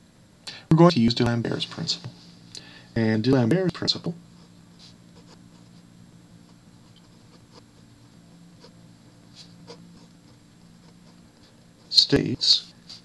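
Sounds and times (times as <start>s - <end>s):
steady low hum: 0.0s - 13.0s
pen scratching on paper: 4.4s - 5.8s, 6.4s - 13.0s.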